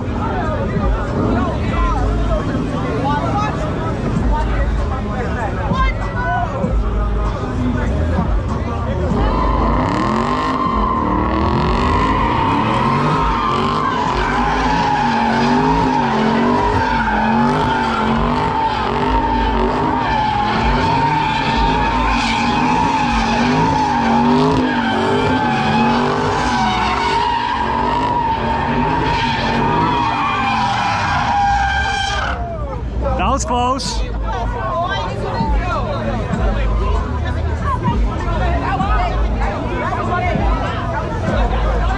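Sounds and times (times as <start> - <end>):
car engine revving: 0.0 - 33.4
tires squealing: 0.0 - 41.9.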